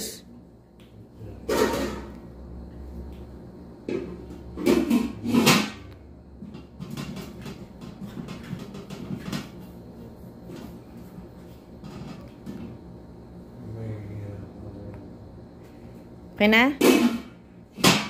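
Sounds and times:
metal pot and lid clattering: 0:01.5 - 0:02.1, 0:04.6 - 0:05.8.

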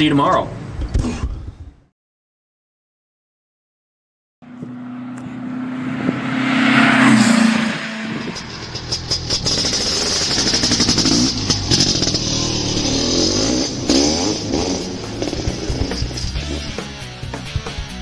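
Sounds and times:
vehicle engine drone: 0:04.4 - 0:18.0.

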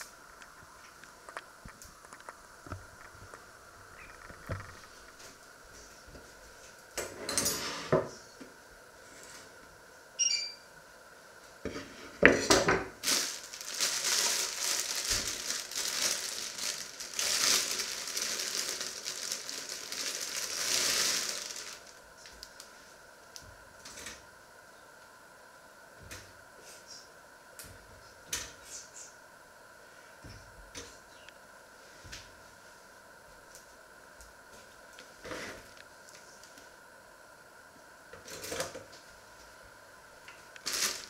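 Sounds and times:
plastic bag crinkling: 0:13.0 - 0:22.7, 0:40.6 - 0:41.0.

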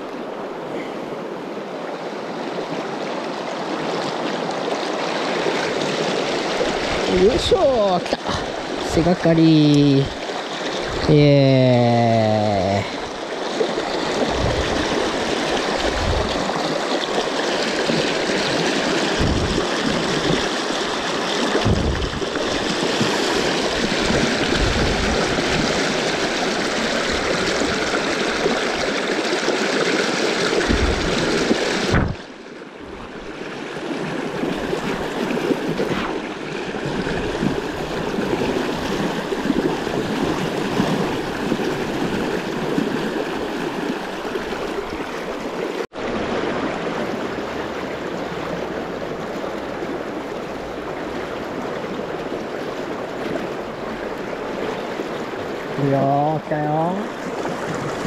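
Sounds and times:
low thumps: 0:19.2 - 0:19.6, 0:21.6 - 0:22.3.

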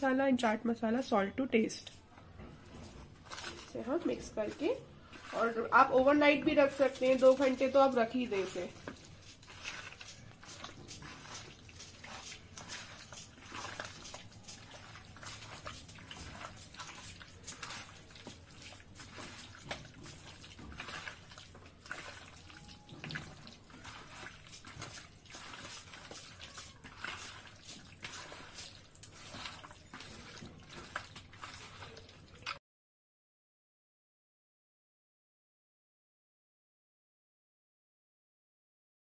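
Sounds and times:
wet squelching of kneaded chicken: 0:02.9 - 0:32.6.

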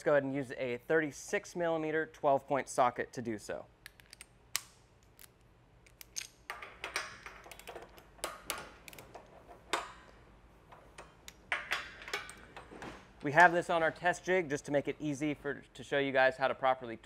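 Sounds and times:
metal socket clicks and clinks: 0:03.8 - 0:06.4.

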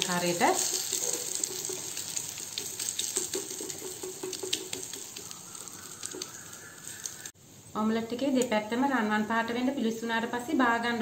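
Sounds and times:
omelette sizzling in oil: 0:00.0 - 0:07.4.

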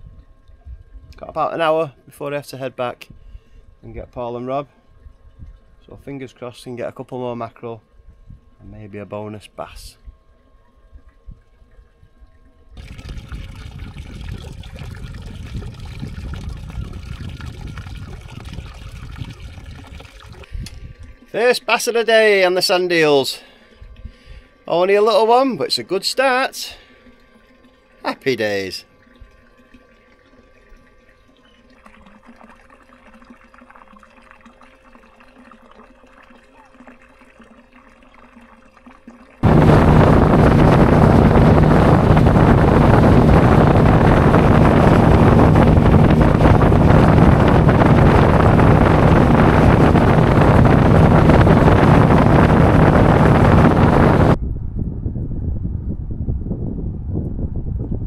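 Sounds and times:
outboard motor droning: 0:00.0 - 0:54.4
water lapping against boat hull: 0:10.0 - 0:21.4, 0:26.8 - 0:54.4
wind buffeting microphone: 0:12.8 - 0:21.2, 0:39.4 - 0:58.0.

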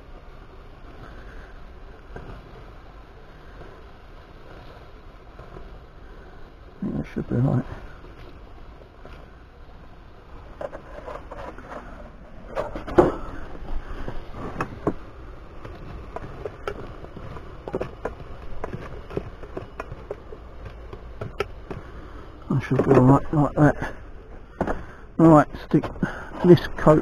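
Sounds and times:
gear handling knocks and clicks: 0:15.6 - 0:22.0.

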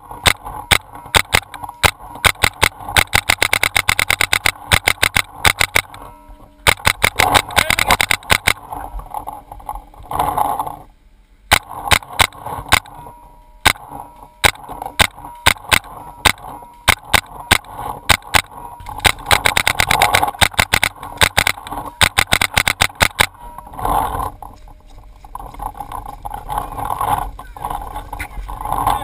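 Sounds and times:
paintball markers firing: 0:00.2 - 0:06.1, 0:06.7 - 0:08.7, 0:11.5 - 0:13.0, 0:13.7 - 0:23.4.

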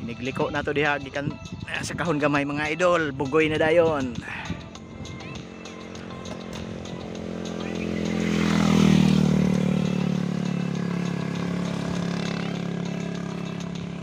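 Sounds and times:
vehicle engine passing by: 0:04.2 - 0:14.0.

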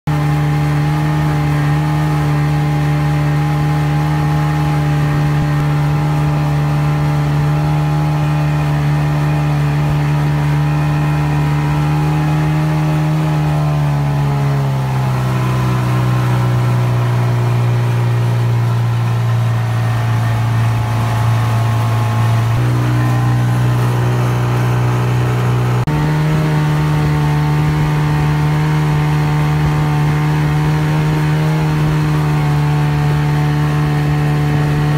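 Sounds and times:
boat motor running: 0:00.0 - 0:34.9
water rushing along hull: 0:00.0 - 0:34.9.

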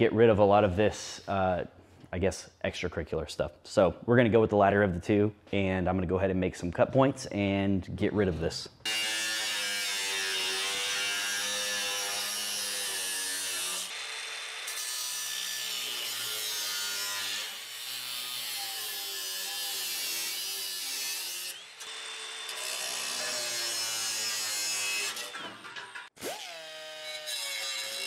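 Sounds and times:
angle grinder cutting sheet steel: 0:08.9 - 0:28.0.

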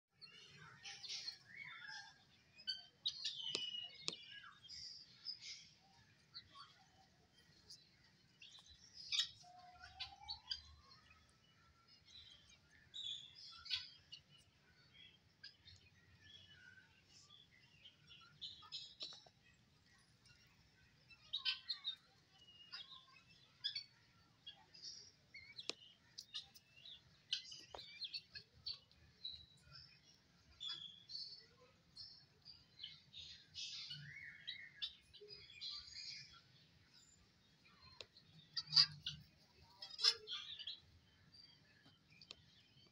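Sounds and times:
guinea fowl chirping: 0:08.6 - 0:10.8, 0:37.8 - 0:40.9.

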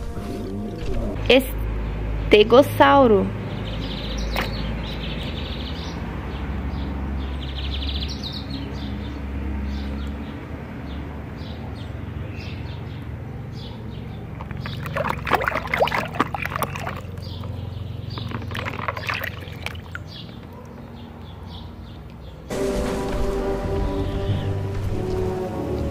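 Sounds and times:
birds chirping: 0:00.0 - 0:25.9
water splashing in a tub: 0:14.2 - 0:20.6.

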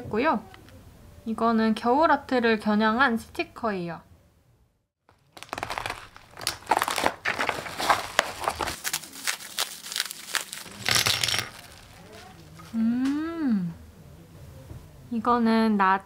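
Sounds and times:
plastic mailer being cut: 0:05.1 - 0:12.8
plastic packaging crinkling: 0:05.1 - 0:12.8.

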